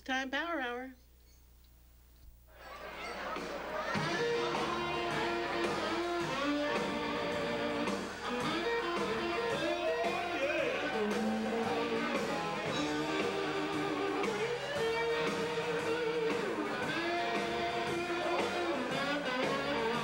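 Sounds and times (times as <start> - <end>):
blues band playing: 2.6 - 20.0
guitar lead with bent notes: 2.6 - 20.0.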